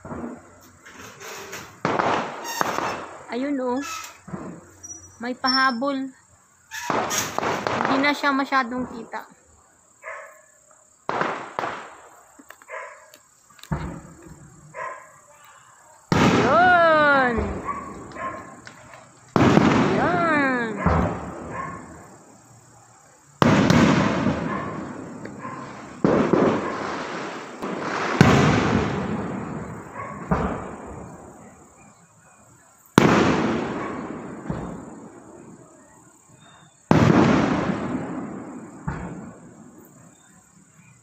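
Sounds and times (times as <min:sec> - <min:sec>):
small firework pops: 0:00.0 - 0:03.2, 0:06.8 - 0:08.2, 0:11.0 - 0:14.5, 0:15.4 - 0:21.9, 0:23.4 - 0:31.3, 0:32.9 - 0:35.2, 0:36.8 - 0:40.0
firework shells bursting: 0:00.0 - 0:05.8, 0:06.7 - 0:09.2, 0:11.0 - 0:15.4, 0:16.0 - 0:22.2, 0:23.4 - 0:31.4, 0:32.9 - 0:35.5.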